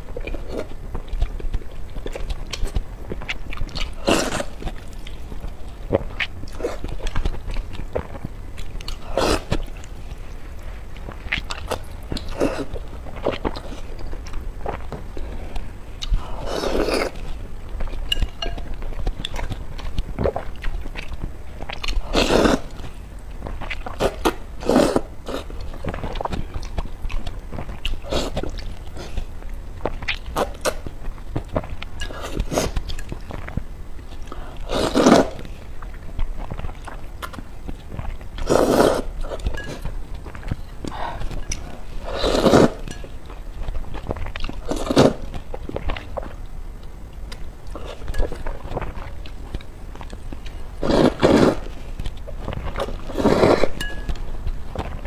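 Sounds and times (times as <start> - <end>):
chewing with wet mouth clicks: 0.1 - 16.2, 16.9 - 24.4, 25.2 - 34.4
loud noodle slurps: 4.0 - 4.6, 9.0 - 9.6, 22.0 - 22.7, 34.6 - 35.4, 38.4 - 39.1, 42.0 - 42.8, 50.8 - 51.7, 53.0 - 53.8.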